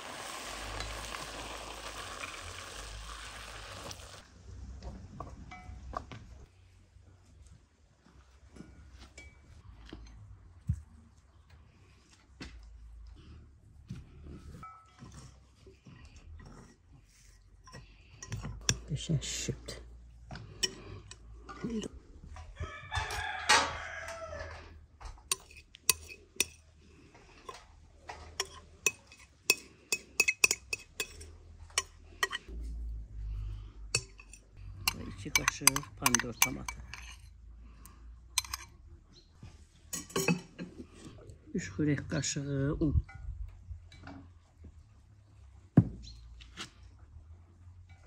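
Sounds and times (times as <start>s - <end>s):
rooster crowing: 22.6s - 24.6s
metal spoon clinking on glass bowl: 25.3s - 26.6s, 28.4s - 32.5s, 33.9s - 37.3s, 38.4s - 38.7s, 39.9s - 40.5s.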